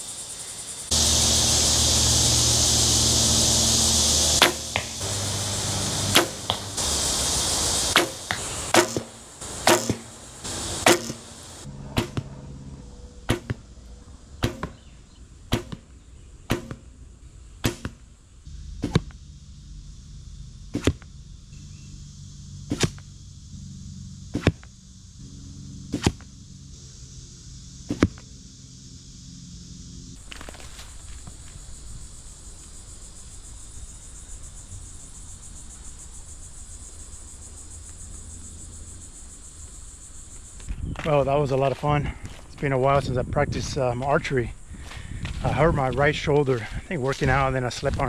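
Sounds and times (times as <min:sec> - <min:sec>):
arrows thwacking into target: 0:04.4 - 0:05.0, 0:06.1 - 0:06.8, 0:07.9 - 0:10.1, 0:10.8 - 0:11.2, 0:11.9 - 0:12.3, 0:13.3 - 0:13.6, 0:14.4 - 0:14.8, 0:15.5 - 0:15.9, 0:16.5 - 0:16.9, 0:17.6 - 0:18.0, 0:18.8 - 0:19.1, 0:20.7 - 0:21.0, 0:22.7 - 0:23.0, 0:24.3 - 0:24.7, 0:25.9 - 0:26.3, 0:27.9 - 0:28.2.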